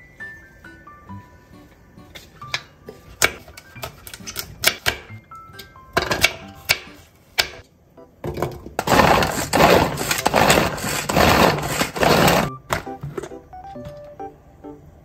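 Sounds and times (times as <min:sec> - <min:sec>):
food chopper blades spinning: 0:08.8 - 0:12.5.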